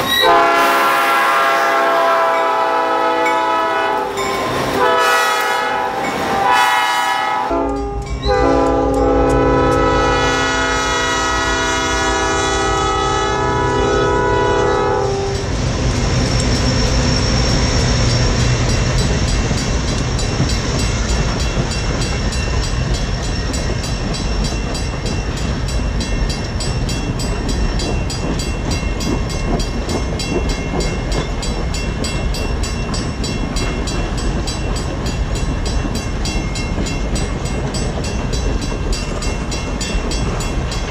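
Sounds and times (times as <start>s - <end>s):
train coaches rumbling past: 0.0s - 40.9s
locomotive air horn blasts: 0.1s - 15.4s
train wheel clicks: 7.5s - 10.2s, 15.3s - 40.9s.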